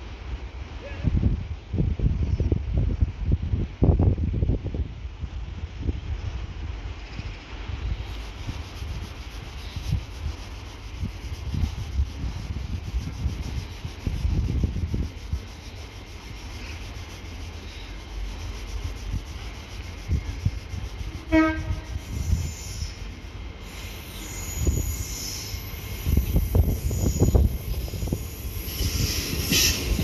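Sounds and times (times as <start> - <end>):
train rumbling past: 0.0 - 30.0
short train horn toot: 21.2 - 23.0.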